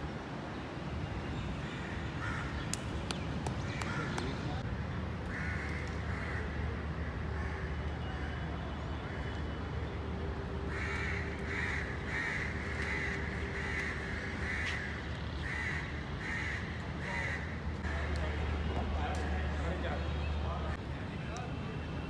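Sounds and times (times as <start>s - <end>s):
crow cawing: 10.7s - 17.5s.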